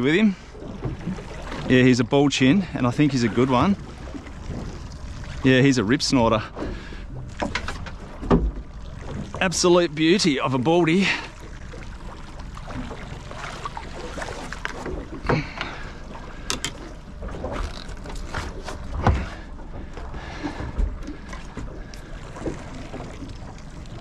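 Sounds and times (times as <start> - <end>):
water around a boat: 0.0 - 24.0
wind: 0.0 - 24.0
knocks and thumps: 7.4 - 8.7.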